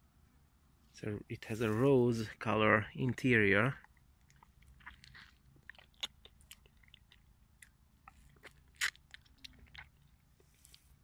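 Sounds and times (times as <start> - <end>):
person chewing: 3.8 - 11.0.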